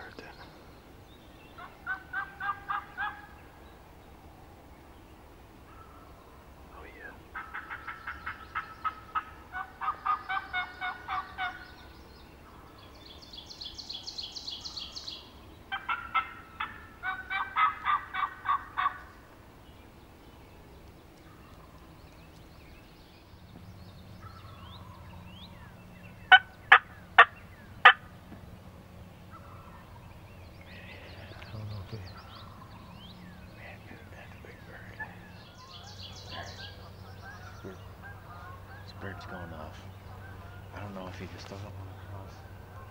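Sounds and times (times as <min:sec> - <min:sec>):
turkey yelping: 0:01.6 - 0:03.4, 0:07.4 - 0:11.7, 0:15.7 - 0:19.2, 0:26.3 - 0:28.1, 0:35.0 - 0:39.4.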